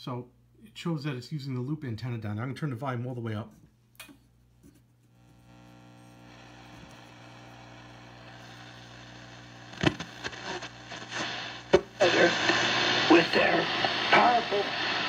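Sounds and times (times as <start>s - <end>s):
radio static hiss: 5.1s - 15.0s
static crackles: 5.1s - 15.0s
radio hum: 5.2s - 15.0s.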